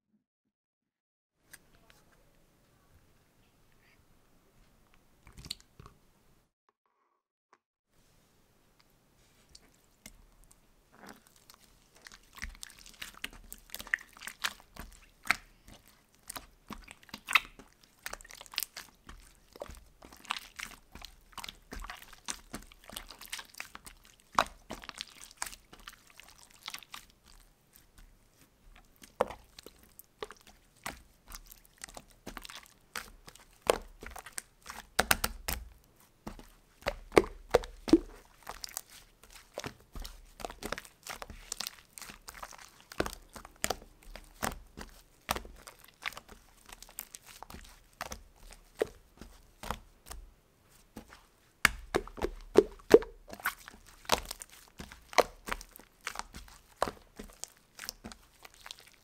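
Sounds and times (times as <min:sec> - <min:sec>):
slime squishing: 0:08.7 - 0:59.0
air bubbles popping in slime: 0:36.8 - 0:43.9, 0:51.6 - 0:57.0.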